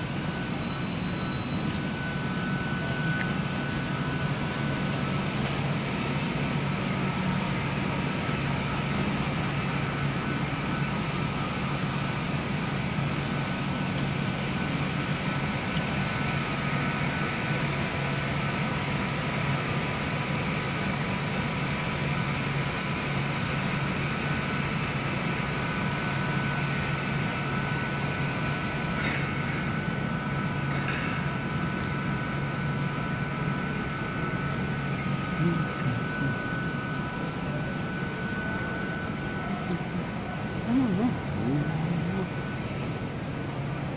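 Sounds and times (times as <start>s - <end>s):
machinery drone with high whine: 0.0s - 43.9s.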